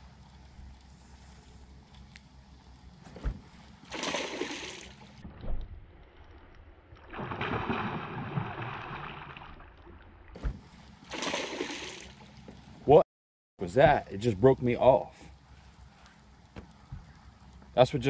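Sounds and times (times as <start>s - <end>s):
water splashing around boat: 3.1s - 13.0s.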